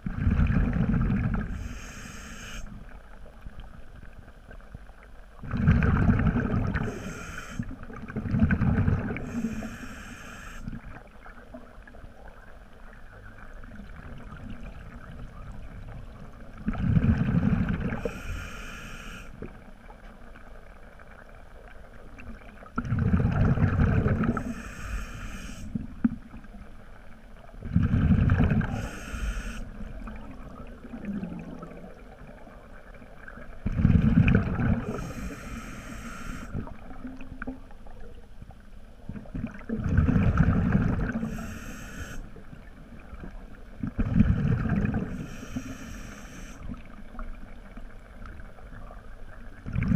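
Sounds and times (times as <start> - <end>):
exhaled bubbles rushing: 0.0 - 1.6, 5.4 - 7.1, 7.8 - 9.5, 13.7 - 18.1, 22.8 - 24.6, 27.6 - 28.9, 29.8 - 32.6, 33.6 - 35.3, 39.1 - 41.4, 43.8 - 45.3, 49.6 - 49.9
high-pitched regulator hiss: 1.5 - 2.8, 6.8 - 7.7, 9.3 - 10.7, 18.0 - 19.4, 24.4 - 25.8, 28.7 - 29.7, 34.9 - 36.6, 41.3 - 42.3, 45.2 - 46.7.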